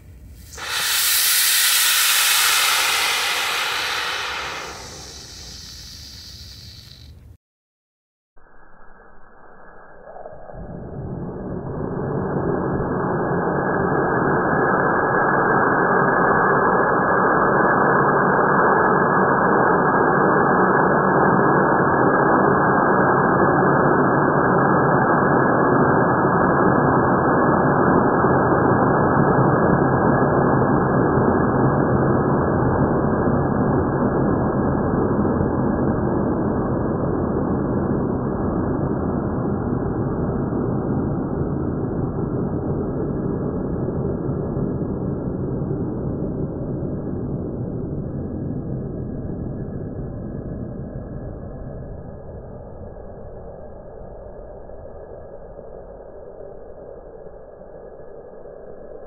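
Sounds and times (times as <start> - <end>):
rocket motor rushing hiss: 0.3 - 7.2.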